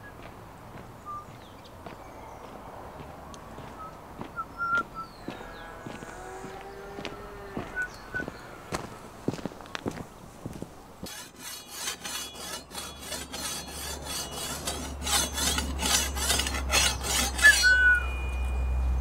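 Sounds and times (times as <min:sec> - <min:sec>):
machete blade scraping: 0:11.0 - 0:18.6.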